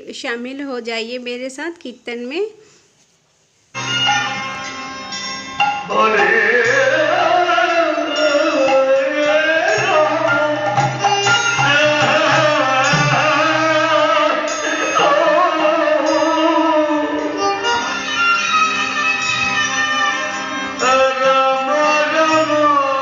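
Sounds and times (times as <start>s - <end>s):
drum and instrument accompaniment: 3.8s - 20.0s
person singing a sliding melody: 11.5s - 17.3s.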